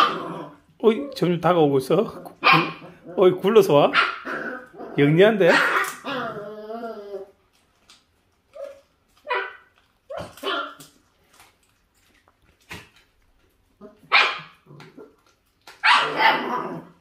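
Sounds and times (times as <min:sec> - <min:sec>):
dog barking: 0:02.4 - 0:02.9, 0:03.9 - 0:04.3, 0:09.2 - 0:10.8, 0:14.1 - 0:14.6, 0:15.8 - 0:16.6.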